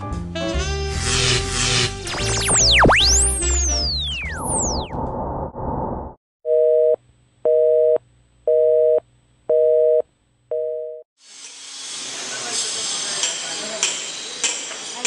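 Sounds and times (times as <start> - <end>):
electronic falling sweeps: 2.0 - 6.2.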